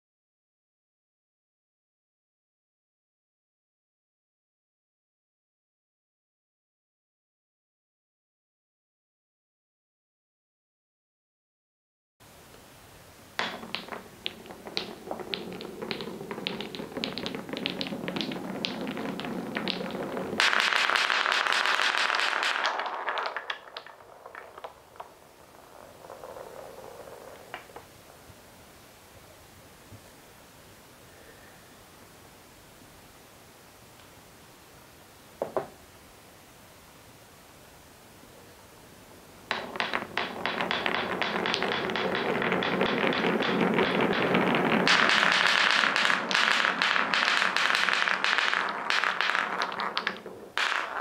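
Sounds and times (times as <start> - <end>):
marbles rattling down wooden track: 13.4 - 27.9, 39.5 - 51.0
rolling rumble: 13.4 - 28.5, 39.5 - 51.0.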